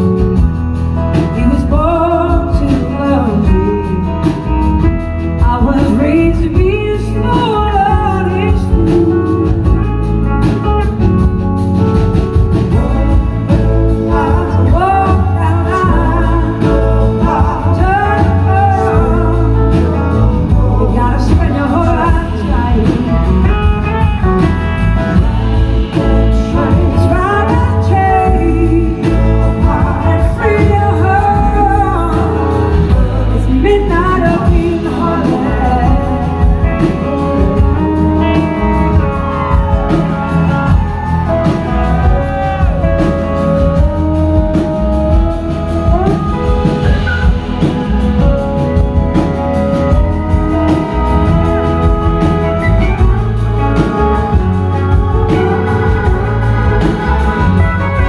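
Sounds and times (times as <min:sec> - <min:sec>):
drums: 0:00.0 - 0:58.0
electric guitars: 0:00.0 - 0:58.0
woman singing lead: 0:00.0 - 0:58.0.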